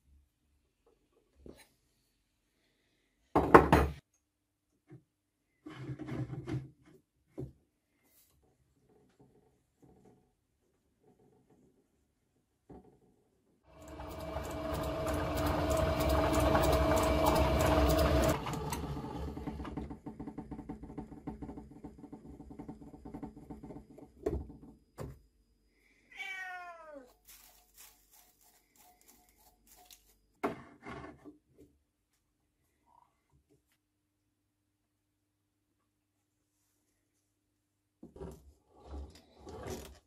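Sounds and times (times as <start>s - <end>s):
metal lathe humming and whining: 13.7s - 19.4s.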